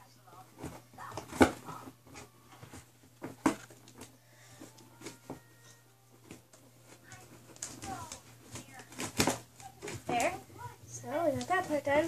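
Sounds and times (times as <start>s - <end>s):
cardboard clicks and rustles: 0.4s - 5.5s, 6.2s - 10.6s.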